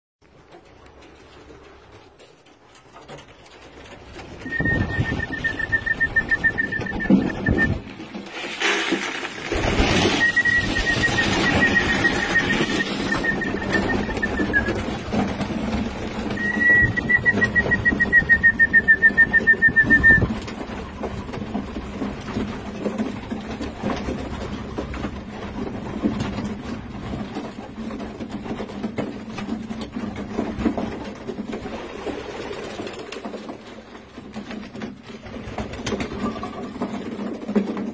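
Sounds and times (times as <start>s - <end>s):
pigeons feeding at a trough: 0.2s - 37.9s
pigeons cooing: 4.4s - 7.8s, 10.0s - 15.2s
trilling whistle calls: 4.4s - 7.8s, 10.0s - 14.9s, 16.3s - 20.3s.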